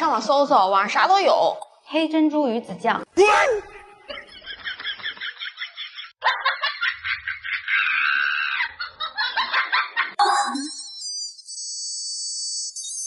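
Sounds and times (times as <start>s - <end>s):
comic bird-like chirping: 10.2s - 13.0s.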